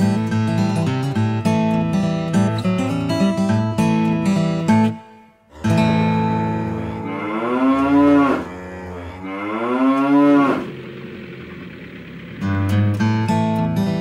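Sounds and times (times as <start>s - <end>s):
cow mooing: 5.5s - 10.9s.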